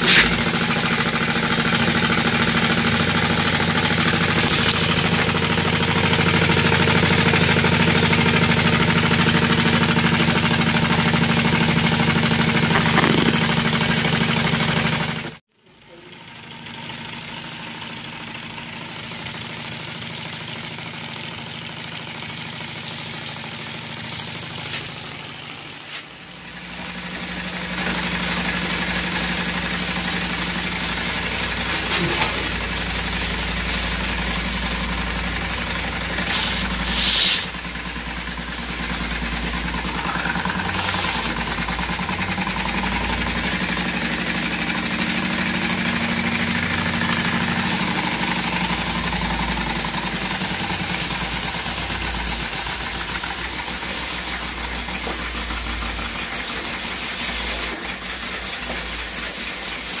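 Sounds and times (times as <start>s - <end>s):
hiss of escaping steam: 0.0s - 0.5s, 36.1s - 37.6s
small steam engine running: 0.0s - 60.0s.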